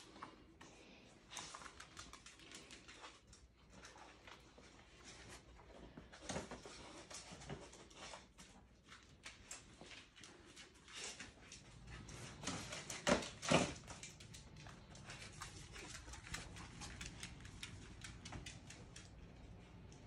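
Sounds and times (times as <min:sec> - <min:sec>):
dog claws clicking on hard floor: 0:11.0 - 0:19.6.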